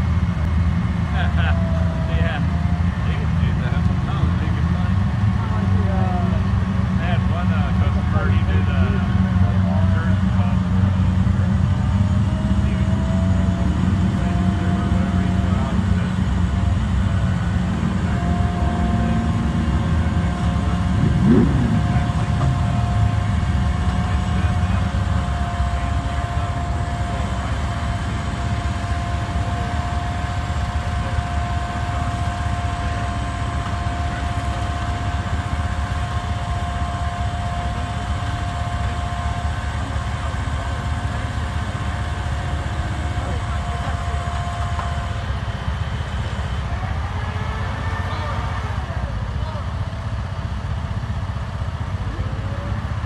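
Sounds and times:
engine revving: 0.0 - 50.9
truck engine running: 0.0 - 53.0
winch whine: 11.7 - 40.8.

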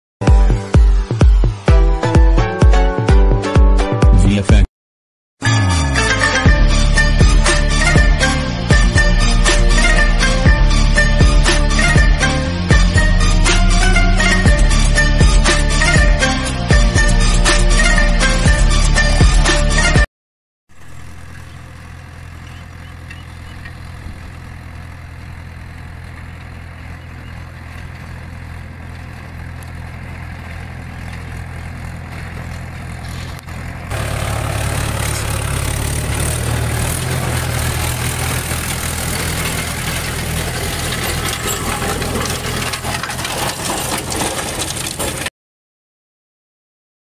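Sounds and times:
tractor diesel engine running: 5.4 - 19.9, 20.7 - 45.3
rotavator churning and grinding: 20.7 - 45.3.

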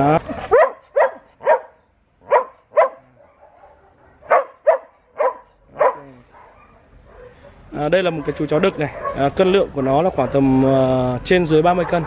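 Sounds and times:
dog barking: 0.4 - 9.3, 11.7 - 12.0.

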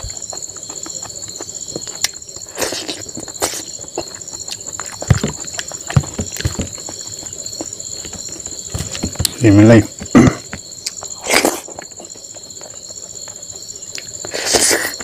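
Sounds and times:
chewing and lip smacking: 0.0 - 7.8, 10.8 - 15.0.

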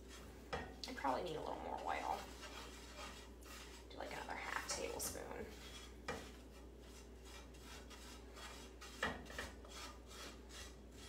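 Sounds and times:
spatula scraping frying pan: 0.0 - 11.0
spatula knocking against pan: 8.9 - 9.6.

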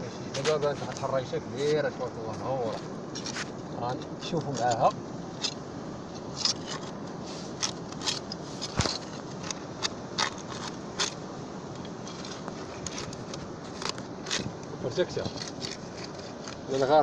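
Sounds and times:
metal rod scraping rock and sand: 6.2 - 11.2.

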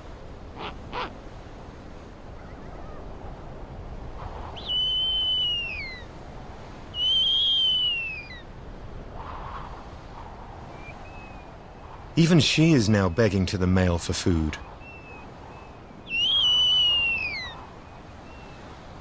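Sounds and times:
owl high whistled calls: 4.5 - 6.1, 6.9 - 8.4, 14.8 - 18.7.

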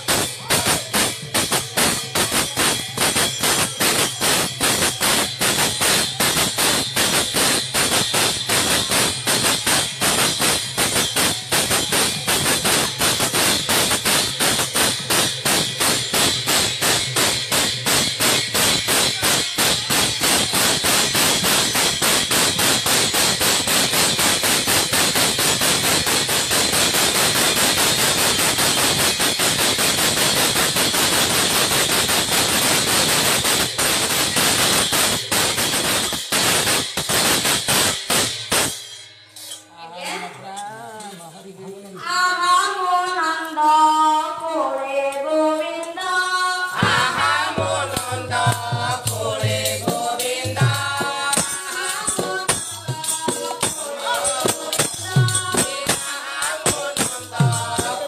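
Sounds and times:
hand cymbals ringing and clashing: 0.0 - 41.1, 45.8 - 58.0
hand drum beating: 46.8 - 58.0.

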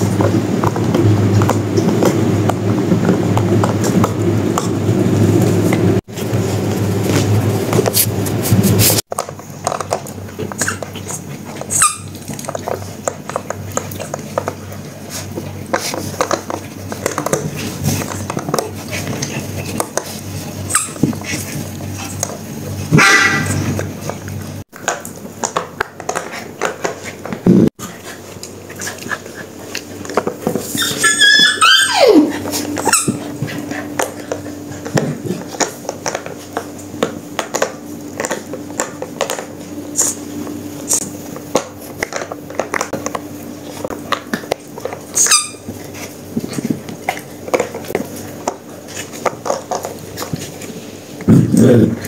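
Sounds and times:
puppies squealing: 10.6 - 12.2, 30.6 - 33.4, 45.1 - 45.7.

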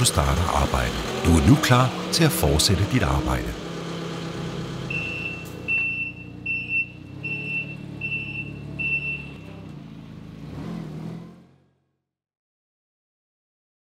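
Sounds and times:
engine running: 0.0 - 11.9
high reversing alarm beeps: 4.9 - 9.5.

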